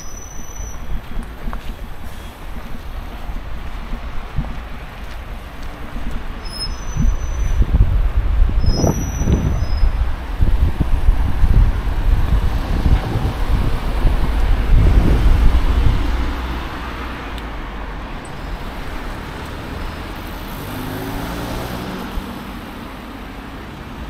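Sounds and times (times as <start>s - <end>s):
cars passing: 0.0s - 24.0s
heavy low rumble: 7.0s - 19.1s
engine passing: 10.0s - 24.0s.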